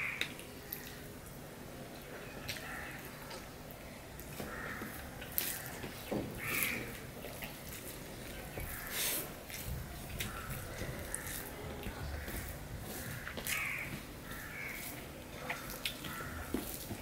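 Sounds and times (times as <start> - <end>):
chewing and lip smacks: 6.6 - 8.8, 14.3 - 17.0.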